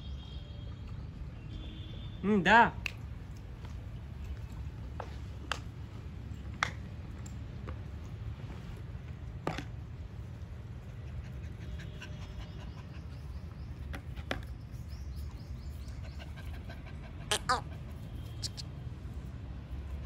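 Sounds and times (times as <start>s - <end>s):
puppies panting: 10.6s - 14.7s, 15.3s - 18.6s.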